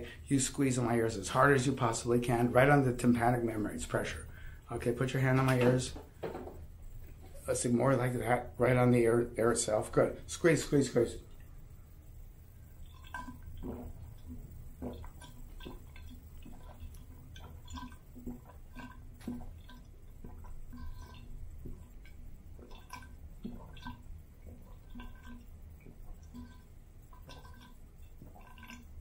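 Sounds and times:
water sloshing and dripping: 0:09.6 - 0:29.0
man gulping water: 0:12.6 - 0:29.0.

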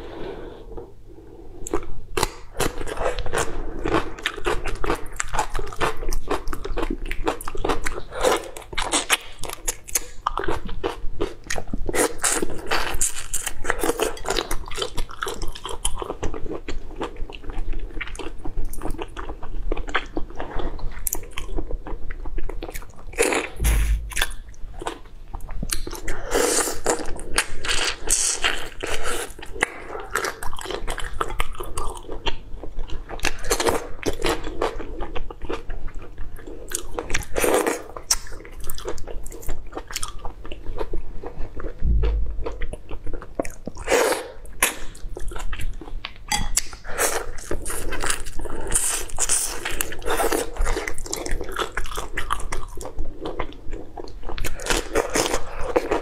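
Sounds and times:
dull low thump: 0:23.6 - 0:24.3, 0:41.8 - 0:42.7.

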